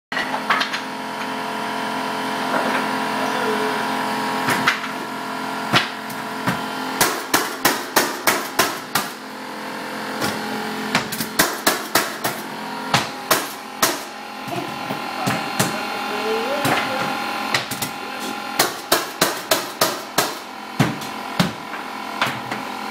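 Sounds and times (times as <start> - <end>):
mallet knocking flooring nailer: 5.7 - 9.2, 10.1 - 15.8, 18.6 - 22.7.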